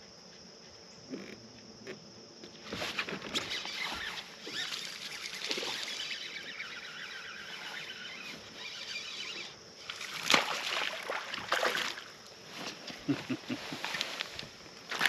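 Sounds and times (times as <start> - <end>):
fishing reel ticking: 3.4 - 9.6
fish splashing: 4.5 - 7.0, 9.9 - 12.2.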